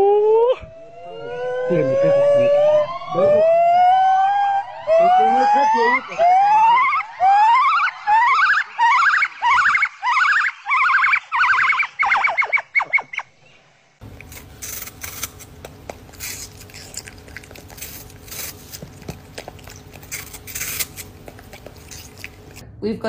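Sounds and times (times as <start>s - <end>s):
gibbon whooping calls: 6.2s - 13.3s
dog chewing with crunching: 14.0s - 22.6s.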